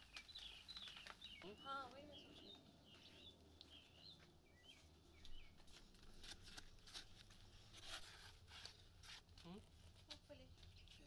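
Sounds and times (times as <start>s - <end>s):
birds chirping: 0.0s - 6.2s.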